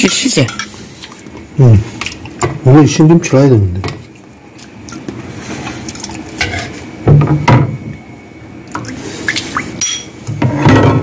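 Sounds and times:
liquid splashing and dripping: 4.0 - 6.4, 8.7 - 9.9.

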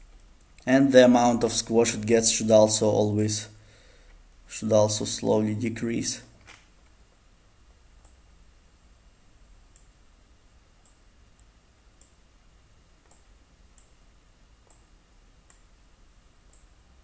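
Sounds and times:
faint computer mouse clicks: 9.7 - 10.0, 10.8 - 12.2, 13.0 - 14.0, 14.6 - 15.7.

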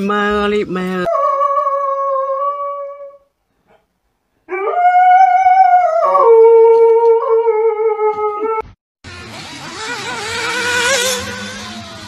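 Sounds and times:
dog howling: 4.5 - 8.6.

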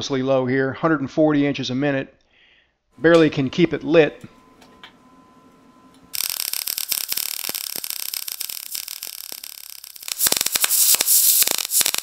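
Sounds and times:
welding arc hissing and popping: 6.1 - 12.0.

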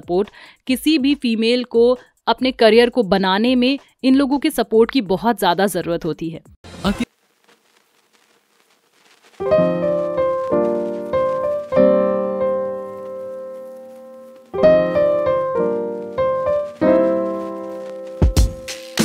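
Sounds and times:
piano notes and chords: 9.4 - 19.0.

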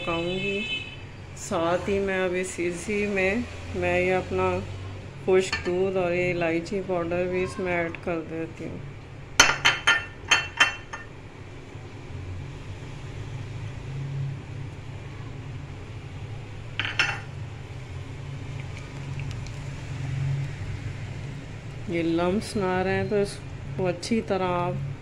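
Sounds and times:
utensil clinking on pot: 5.5 - 5.8, 9.4 - 11.2, 16.8 - 17.3.

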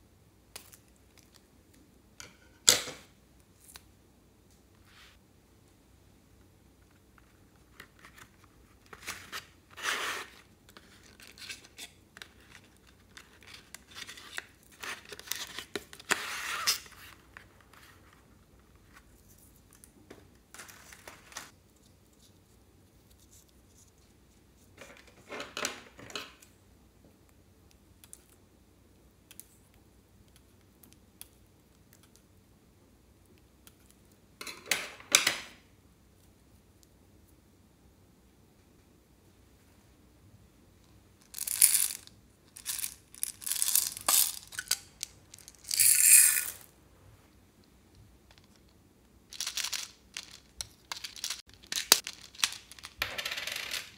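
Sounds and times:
cardboard and crayons rustling: 20.5 - 21.5.

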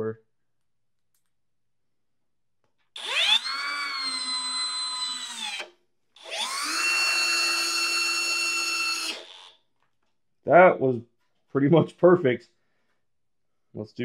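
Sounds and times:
cordless drill driving screw into wood: 3.0 - 9.6.

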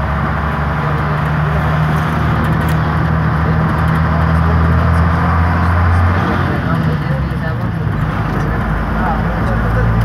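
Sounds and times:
bus engine droning: 0.0 - 10.0
road noise: 0.0 - 10.0.

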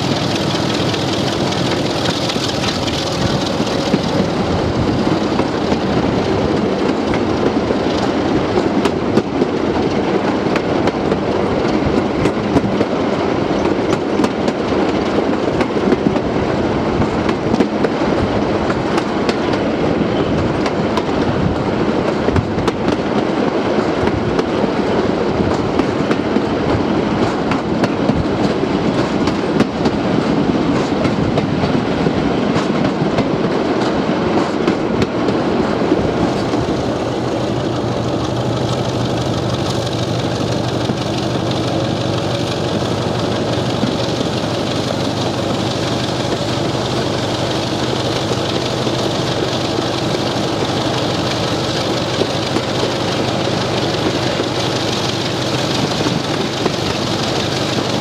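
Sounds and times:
wheels clattering over rails: 0.0 - 12.9, 36.2 - 58.0
diesel locomotive engine running: 0.0 - 58.0.

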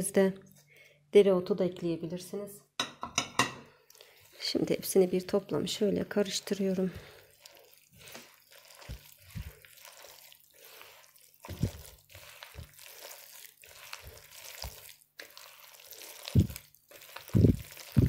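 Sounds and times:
wet dough squelching: 3.9 - 18.0.

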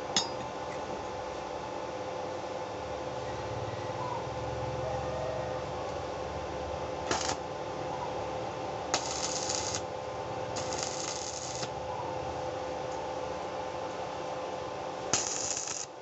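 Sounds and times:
arc welding crackle: 7.0 - 7.5, 8.9 - 11.8, 15.1 - 16.0
welding strike click: 7.1 - 7.4, 15.1 - 15.9.

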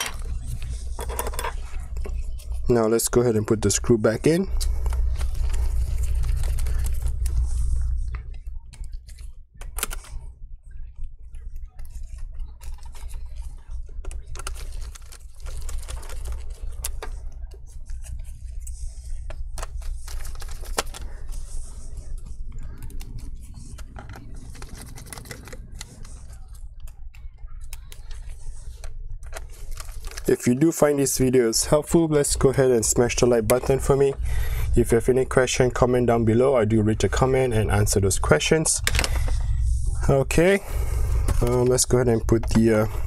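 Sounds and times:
low hum: 0.0 - 43.0.

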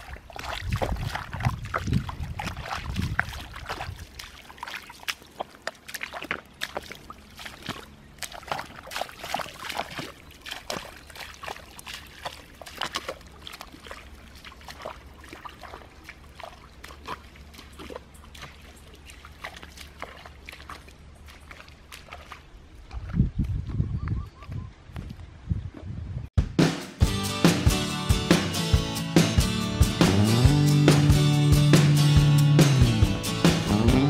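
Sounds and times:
bare feet squelching through mud: 0.0 - 23.9.

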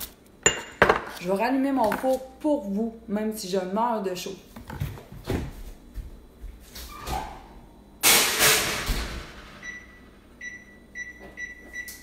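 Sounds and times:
oven keypad beeps: 9.6 - 12.0.

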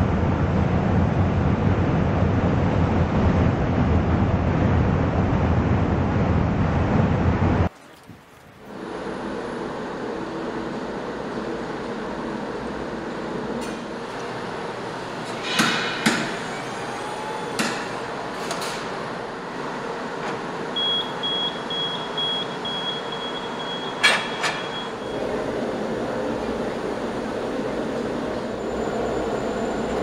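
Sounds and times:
machinery noise: 8.7 - 30.0
short electronic beeps: 20.8 - 25.2.

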